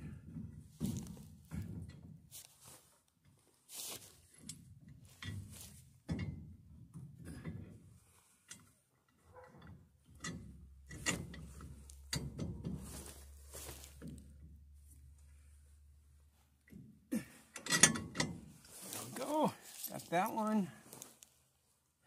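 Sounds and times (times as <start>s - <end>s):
metal knocking and clinking: 8.5s - 14.8s, 17.5s - 18.6s.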